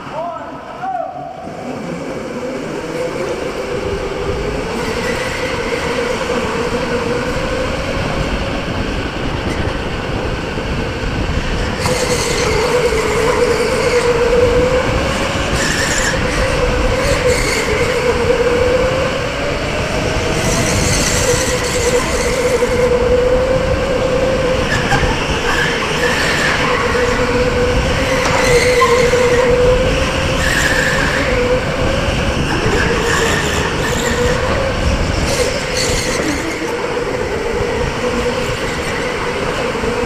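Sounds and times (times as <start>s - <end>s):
tyre and wind noise: 2.4s - 40.0s.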